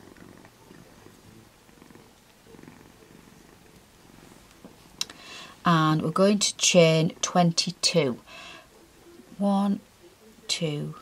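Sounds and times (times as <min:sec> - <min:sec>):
cat purring: 0:00.0 - 0:05.1.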